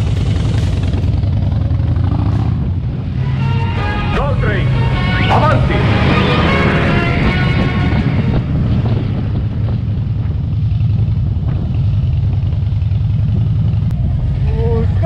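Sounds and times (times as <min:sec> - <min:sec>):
motorcycle engine running: 0:00.0 - 0:15.0
wind on microphone: 0:05.4 - 0:14.7.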